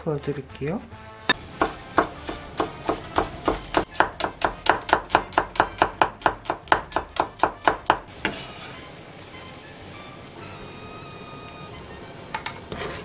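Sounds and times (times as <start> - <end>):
knife chopping on wooden board: 1.3 - 8.5.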